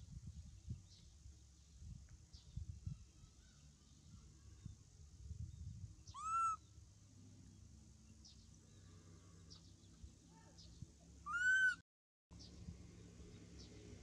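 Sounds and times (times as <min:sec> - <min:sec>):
faint bird chirps: 0:00.2 - 0:06.8, 0:07.4 - 0:11.8
monkey coo calls: 0:06.2 - 0:06.6, 0:11.3 - 0:11.8.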